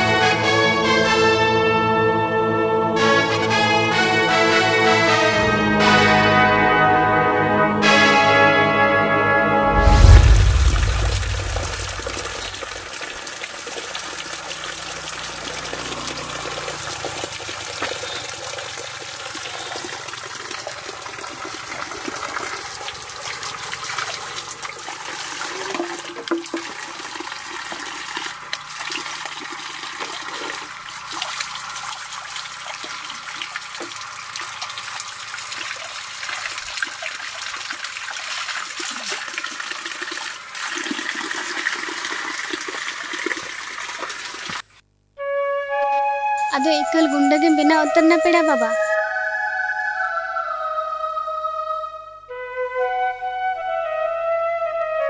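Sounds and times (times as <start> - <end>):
water splashing into stream: 9.7 - 44.7.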